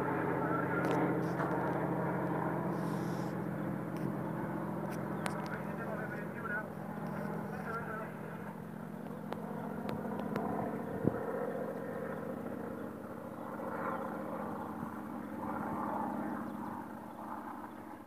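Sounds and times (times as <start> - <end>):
distant airplane engine: 0.0 - 18.0
light clicks: 4.9 - 5.6.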